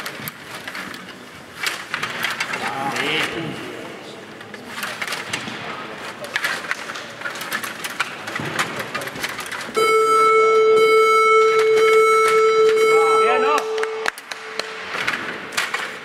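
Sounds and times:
table hockey rods and puck clicking: 0:06.3 - 0:09.8, 0:13.6 - 0:16.0
electronic buzzer tone: 0:09.8 - 0:14.6.

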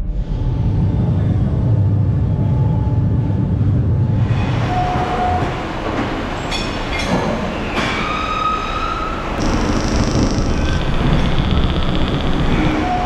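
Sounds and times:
machine rumble: 0:00.0 - 0:04.3, 0:09.4 - 0:13.0
high-pitched cutting squeals: 0:09.4 - 0:13.0.

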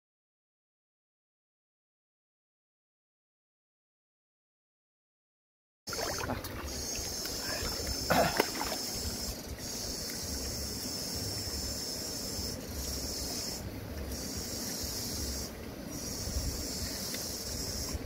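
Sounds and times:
steady high hiss: 0:06.6 - 0:18.0.

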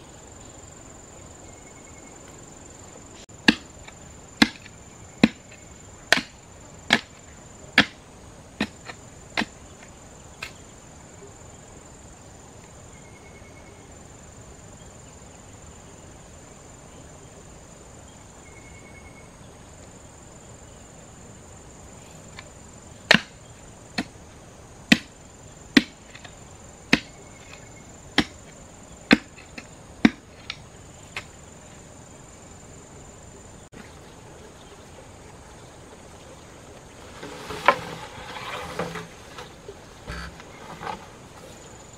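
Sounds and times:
digging tool striking stony soil: 0:03.4 - 0:07.2, 0:07.8 - 0:08.0, 0:08.6 - 0:09.6, 0:23.1 - 0:23.4, 0:24.9 - 0:25.1, 0:25.8 - 0:26.3, 0:26.9 - 0:27.6, 0:28.2 - 0:28.5, 0:29.1 - 0:31.3.

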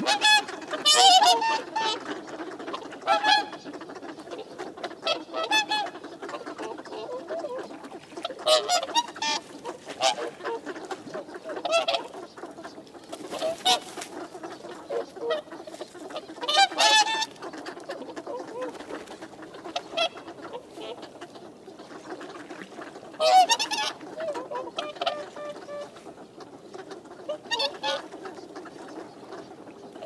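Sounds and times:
swans honking: 0:00.0 - 0:30.0.

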